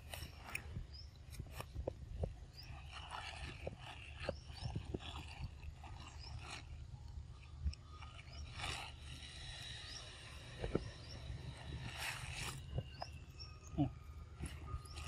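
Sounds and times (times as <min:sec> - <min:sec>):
clicks scrapes and rustles: 0:00.0 - 0:13.6.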